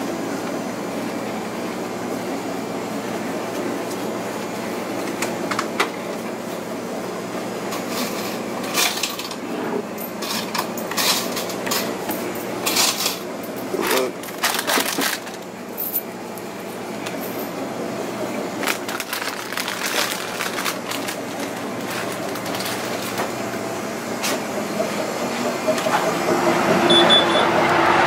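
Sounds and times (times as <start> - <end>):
air conditioning hum: 0.0 - 28.0
items handled at counter: 10.0 - 16.0, 18.6 - 23.4.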